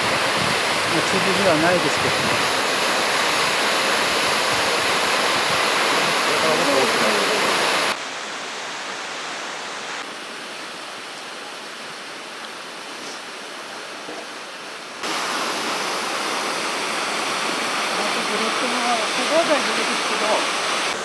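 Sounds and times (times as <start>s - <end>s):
water rushing behind ice: 0.0s - 21.0s.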